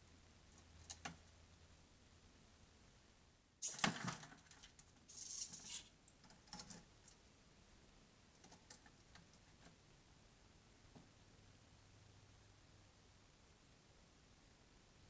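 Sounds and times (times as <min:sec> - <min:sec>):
faint clicks and scrabbles: 0:00.5 - 0:01.4, 0:03.7 - 0:07.2, 0:08.3 - 0:09.8.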